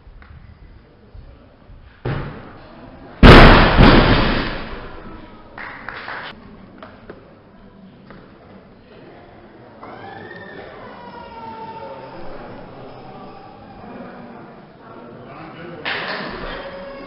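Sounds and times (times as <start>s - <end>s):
barbell crashing onto wooden platform: 3.2s - 5.0s.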